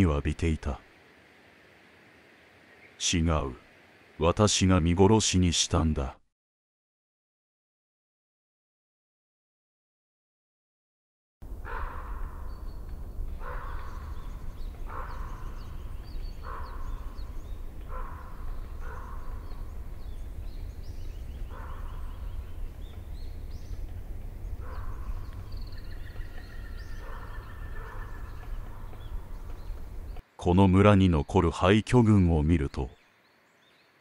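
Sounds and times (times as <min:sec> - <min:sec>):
small birds chirping: 0:00.0 - 0:04.8, 0:11.7 - 0:34.0
steady low rumble: 0:11.4 - 0:30.2
loud rough bird call: 0:13.4 - 0:19.7.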